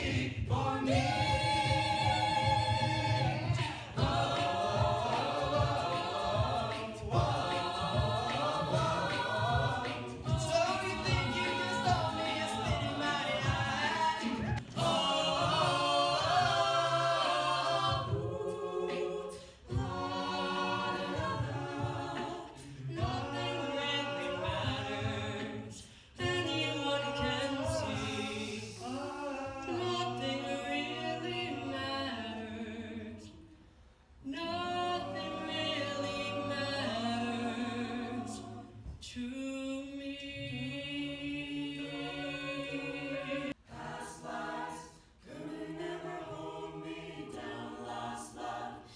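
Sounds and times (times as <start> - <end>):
a cappella group singing in harmony: 0.0 - 48.9.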